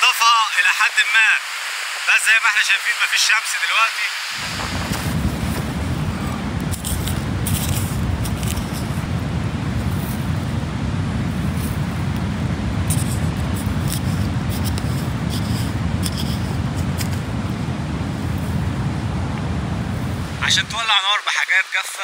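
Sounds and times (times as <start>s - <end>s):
wind buffeting microphone: 4.4s - 20.8s.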